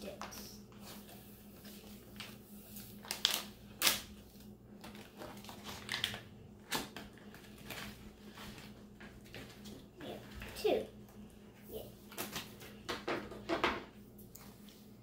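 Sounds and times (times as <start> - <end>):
packaging tearing and crinkling: 3.0 - 4.1, 4.8 - 8.0.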